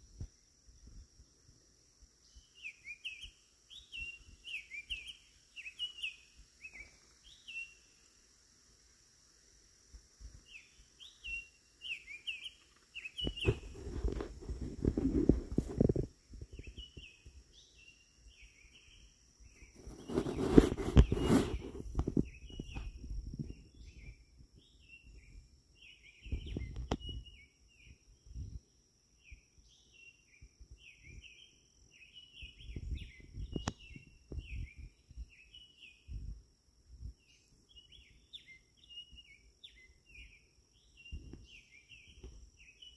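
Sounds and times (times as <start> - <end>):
songbird twittering: 2.2 - 8.1, 10.4 - 36.3, 37.1 - 42.9
low rumbles on microphone: 13.2 - 17.1, 26.2 - 27.3, 32.6 - 35.4.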